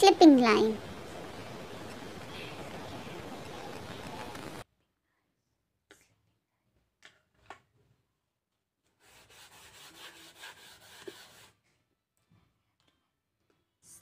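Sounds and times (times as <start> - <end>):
eraser rubbing on slate: 9.0 - 11.5.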